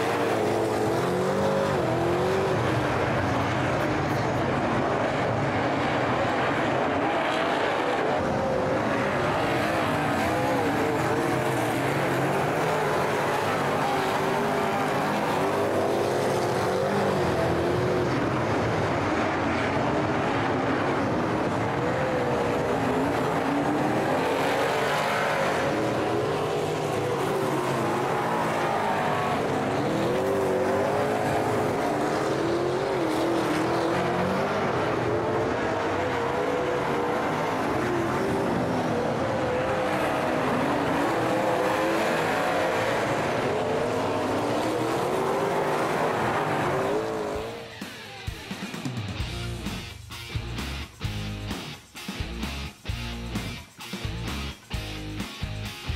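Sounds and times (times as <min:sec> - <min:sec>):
race car engines running hard: 0:00.0 - 0:55.9.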